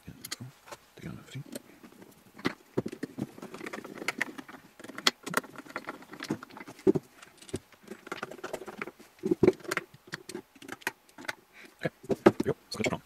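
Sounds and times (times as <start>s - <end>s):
metal parts clicking and rattling: 1.4s - 12.9s.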